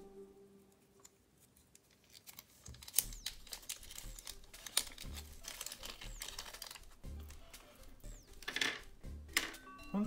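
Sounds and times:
plastic bag crinkling: 1.8 - 7.6.

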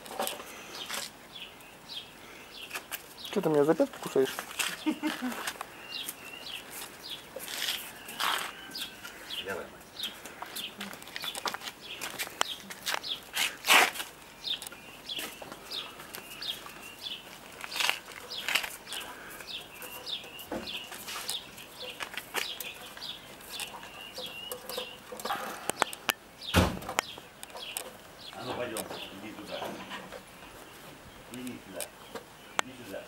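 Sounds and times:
chick chirping: 15.7 - 30.2.

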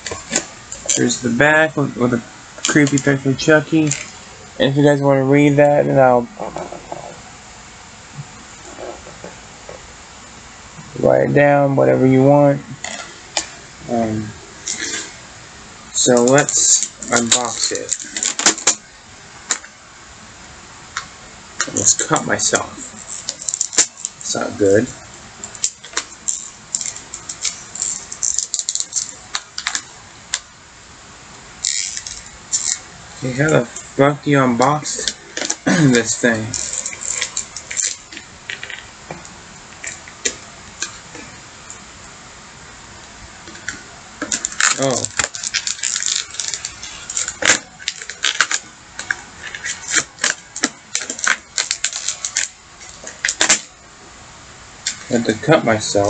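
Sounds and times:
plastic packaging crinkling: 15.9 - 18.9, 21.7 - 30.5, 31.6 - 38.9, 43.5 - 53.8.

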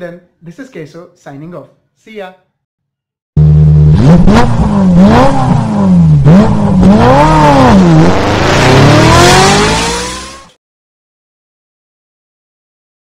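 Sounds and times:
engine revving: 3.4 - 10.6.

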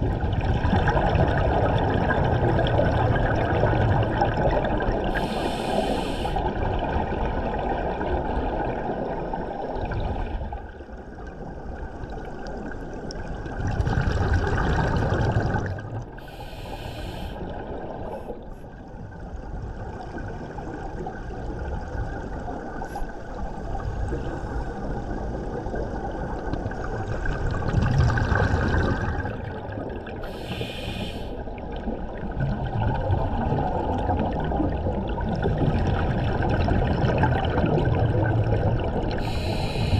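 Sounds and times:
short hissing bursts: 5.2 - 6.4, 16.3 - 17.4, 30.3 - 31.4, 39.2 - 39.9
underwater diver exhaust bubbling: 35.8 - 39.9.

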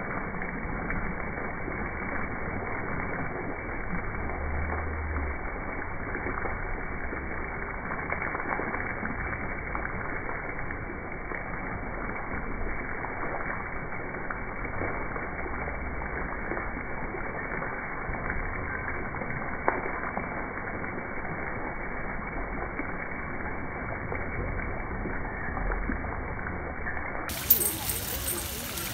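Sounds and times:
fountain water splashing into basin: 0.0 - 28.9.

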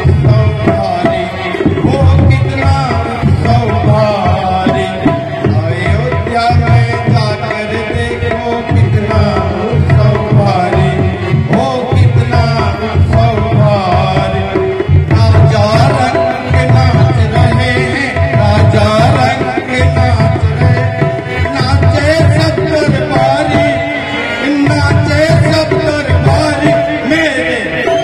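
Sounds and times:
man singing through microphone: 0.0 - 28.0
tabla drums: 0.0 - 28.0.

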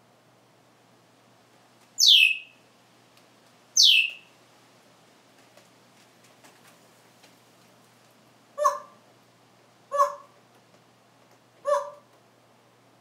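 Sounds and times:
parrot whistling: 2.0 - 2.5, 3.8 - 4.3.

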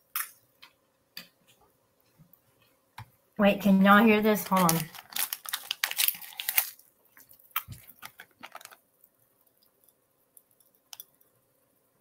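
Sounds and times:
popping candy crackling in mouth: 4.3 - 11.4.

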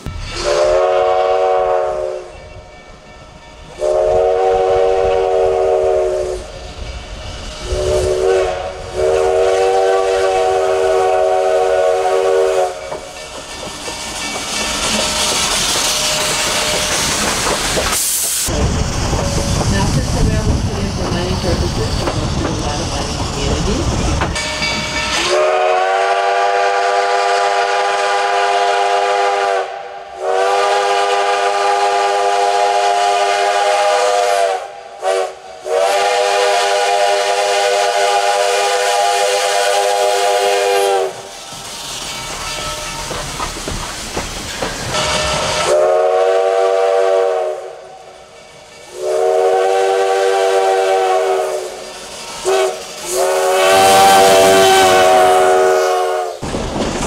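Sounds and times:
steam locomotive whistle blasts: 0.0 - 2.6, 3.7 - 6.7, 7.4 - 13.2, 25.0 - 41.4, 44.9 - 48.2, 48.9 - 56.4
steam hissing: 0.0 - 57.0.

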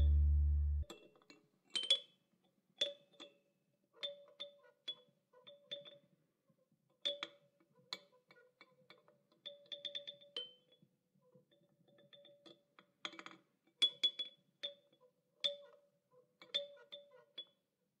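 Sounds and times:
quiet sparse melody: 0.0 - 0.8.

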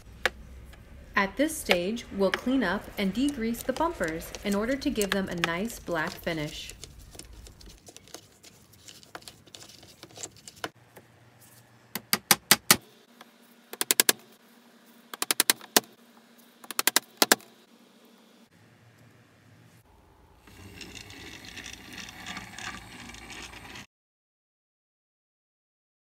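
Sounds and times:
faint handling noises: 1.7 - 11.8.

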